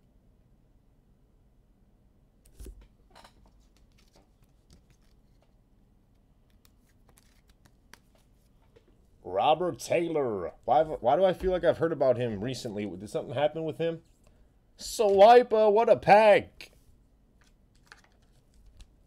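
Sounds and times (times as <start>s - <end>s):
trading cards rustling and clicking: 2.5s - 5.6s, 6.4s - 8.9s, 17.4s - 19.0s.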